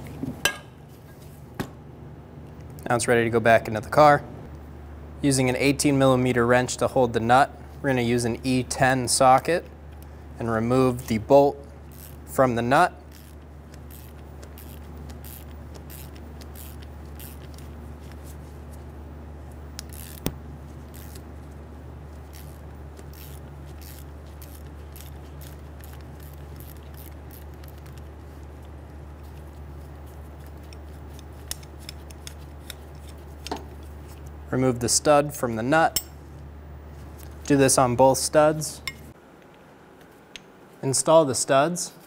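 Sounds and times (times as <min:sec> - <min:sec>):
steady low hum: 0:00.0 - 0:42.0
hand ratchet clicking: 0:13.1 - 0:17.6, 0:19.8 - 0:20.3, 0:22.3 - 0:28.1.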